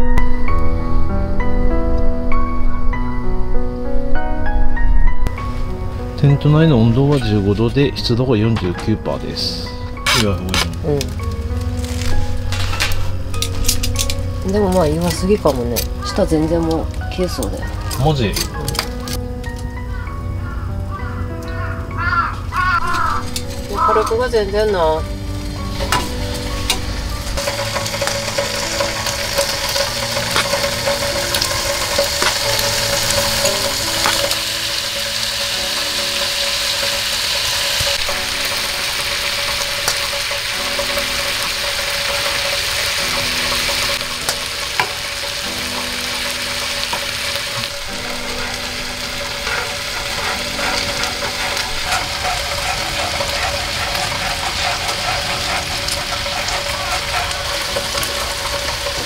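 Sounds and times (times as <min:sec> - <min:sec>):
soft background music: 0:00.0 - 0:59.0
chicken sizzling in a skillet: 0:09.5 - 0:19.2, 0:19.9 - 0:59.0.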